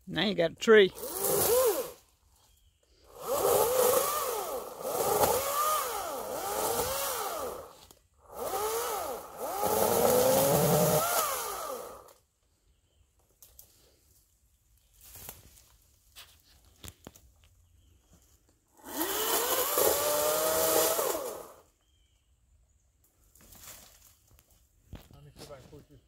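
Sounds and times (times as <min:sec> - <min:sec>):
chainsaw cutting brush: 0:00.8 - 0:02.3, 0:03.0 - 0:12.2, 0:18.7 - 0:21.7.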